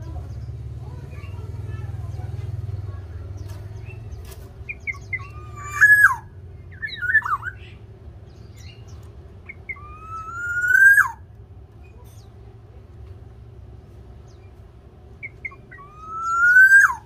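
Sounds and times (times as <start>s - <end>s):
oriole calling: 4.6s - 7.9s, 9.4s - 11.4s, 15.2s - 17.0s.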